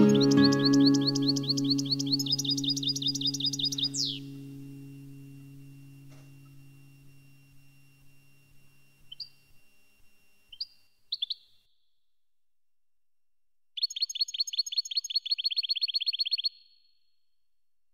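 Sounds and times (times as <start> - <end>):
fast bird trill: 0.0 - 4.5, 10.5 - 11.5, 13.8 - 16.7
bird chirps: 0.0 - 8.2, 9.0 - 9.6, 10.5 - 11.7, 13.8 - 16.9.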